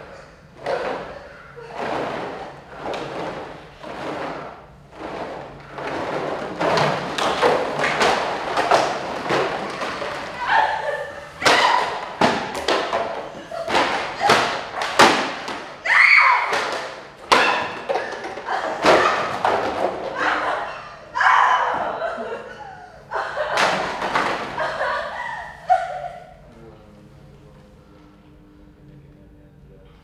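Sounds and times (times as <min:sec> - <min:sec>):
plastic thuds and knocks: 0:00.6 - 0:10.6, 0:11.4 - 0:15.8, 0:23.6 - 0:24.7.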